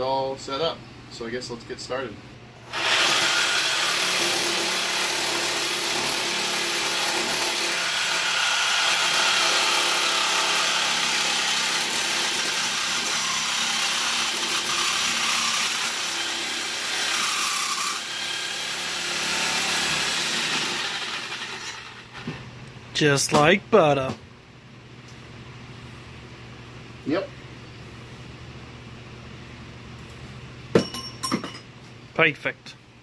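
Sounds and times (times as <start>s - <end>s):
reciprocating saw cutting metal pipe: 6.0s - 22.0s.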